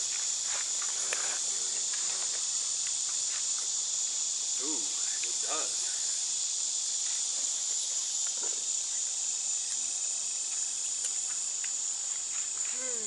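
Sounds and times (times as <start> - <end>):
insects droning: 0.0 - 13.0.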